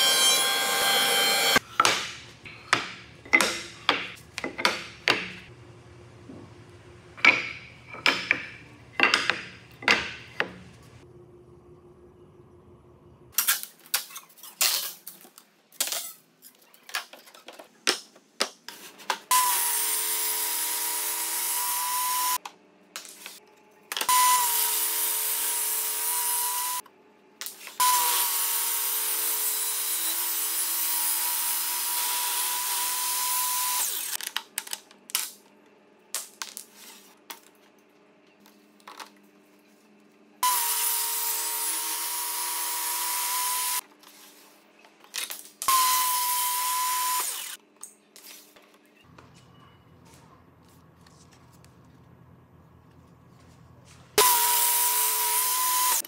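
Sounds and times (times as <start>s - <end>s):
table saw cutting wood: 0.0s - 1.6s, 19.3s - 22.4s, 24.1s - 26.8s, 27.8s - 34.2s, 40.4s - 43.8s, 45.7s - 47.6s, 54.2s - 56.0s.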